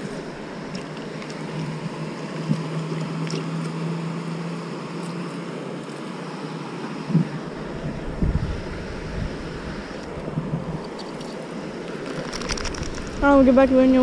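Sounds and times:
flowing water rushing: 0:00.0 - 0:14.0
low steady hum: 0:00.0 - 0:14.0
wind on microphone: 0:07.1 - 0:11.3, 0:12.0 - 0:14.0.

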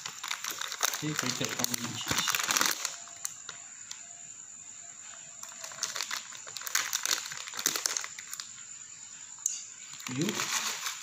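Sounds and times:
plastic packet crinkling: 0:00.0 - 0:03.6, 0:05.4 - 0:08.5, 0:09.9 - 0:11.0.

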